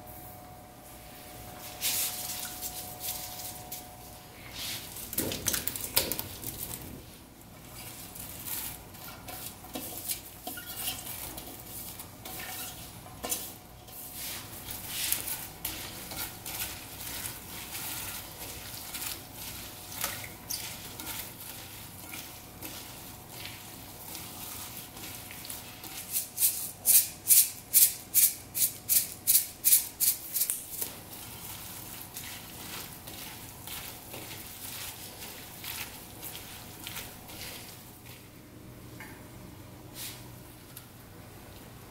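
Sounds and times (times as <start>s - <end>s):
wet squishing of vegetables: 14.1s - 26.4s, 30.8s - 38.2s.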